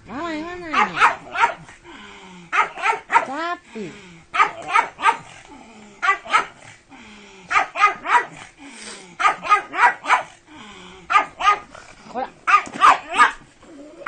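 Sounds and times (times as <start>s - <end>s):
dog barking: 0.7s - 1.7s, 2.5s - 3.4s, 4.3s - 5.3s, 6.0s - 6.6s, 7.5s - 8.4s, 9.2s - 10.4s, 11.1s - 11.7s, 12.5s - 13.4s.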